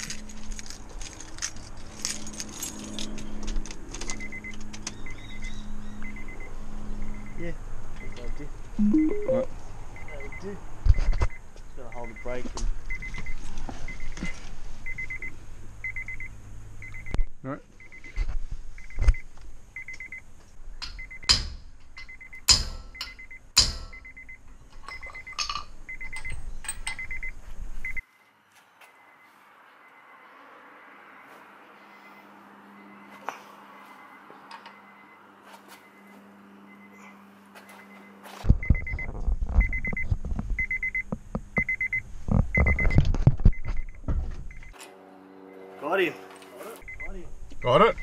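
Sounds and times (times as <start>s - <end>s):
car warning chime beeps: 7.1s - 7.4s, 8.8s - 10.5s, 11.9s - 13.3s, 14.9s - 17.2s, 17.8s - 18.1s, 19.8s - 20.2s, 27.0s - 28.0s, 36.7s - 37.1s, 39.6s - 40.0s, 40.6s - 42.0s, 42.6s - 44.8s, 46.8s - 48.0s
car warning chime beeping: 8.8s - 10.5s, 14.9s - 17.2s, 40.6s - 41.0s, 41.6s - 42.0s, 46.8s - 48.0s
metal parts knocking and clunking: 20.8s - 27.3s
loud metallic knocks: 22.5s - 24.2s.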